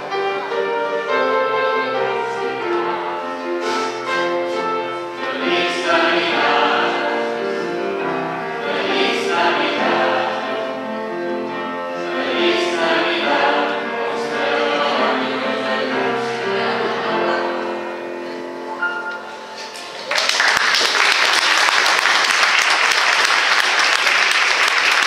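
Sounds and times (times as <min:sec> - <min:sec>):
instrumental accompaniment: 0:00.0 - 0:19.9.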